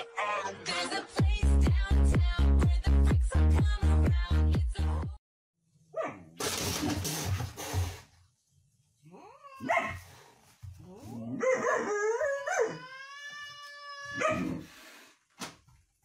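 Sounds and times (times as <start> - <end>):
dog barking and howling: 9.6 - 10.0, 11.2 - 13.0, 14.1 - 14.7.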